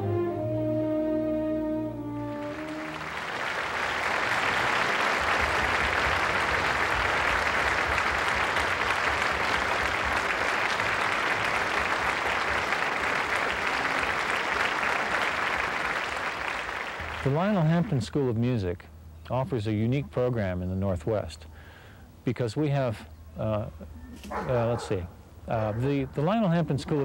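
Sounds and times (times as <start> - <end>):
french horn and orchestra: 0.0 - 5.2
audience applauding: 2.2 - 17.9.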